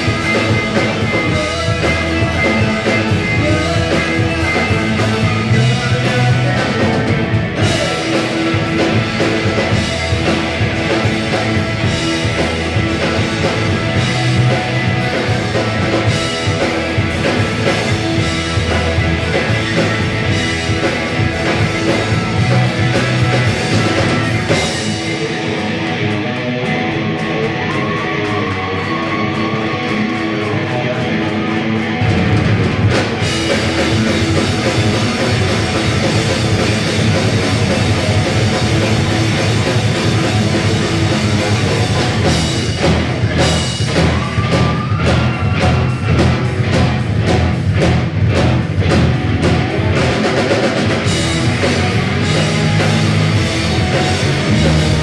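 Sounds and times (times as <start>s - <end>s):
drum kit beat: 0.0s - 55.0s
electric guitar: 0.0s - 55.0s.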